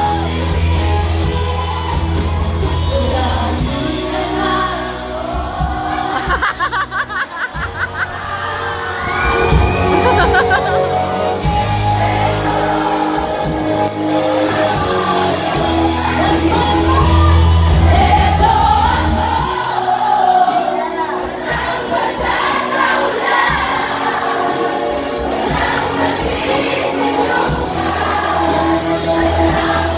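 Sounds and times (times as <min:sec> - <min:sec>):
bass guitar: 0:00.0 - 0:06.9, 0:07.6 - 0:20.2
women singing together: 0:02.9 - 0:06.9, 0:11.4 - 0:29.9.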